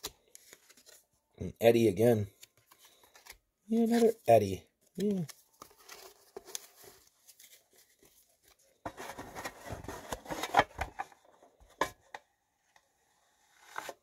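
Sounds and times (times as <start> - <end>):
trading cards rustling and scraping: 0.0 - 1.1, 2.3 - 12.0.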